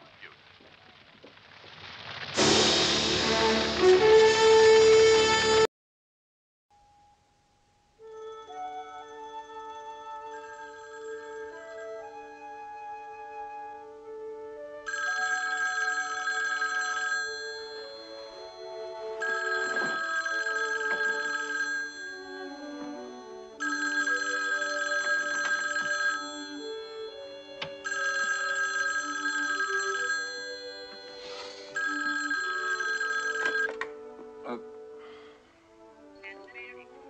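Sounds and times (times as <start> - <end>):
soft background music: 6.8 - 37.0
telephone bell ringing: 8.1 - 12.4, 14.9 - 33.9.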